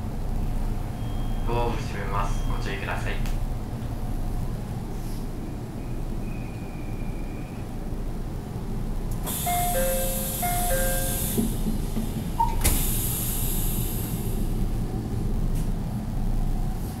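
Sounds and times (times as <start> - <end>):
train low hum: 0.0 - 17.0
short beep: 1.0 - 1.6, 9.4 - 11.3
compressed air hiss: 9.2 - 14.6
falling two-note chime: 9.5 - 11.2.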